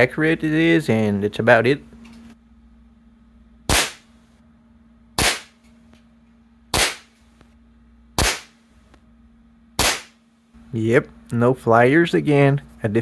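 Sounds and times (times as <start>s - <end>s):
air pistol shots: 3.7s - 4.1s, 5.2s - 5.6s, 6.7s - 7.1s, 8.2s - 8.6s, 9.8s - 10.2s.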